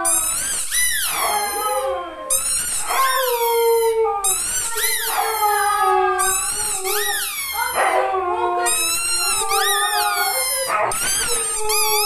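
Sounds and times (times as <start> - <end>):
dog howling: 1.0 - 12.0.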